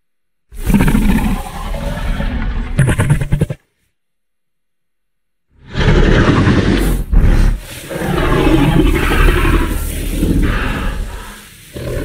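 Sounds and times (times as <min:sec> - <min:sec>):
throaty dinosaur roars: 0:00.6 - 0:02.8, 0:05.6 - 0:12.0.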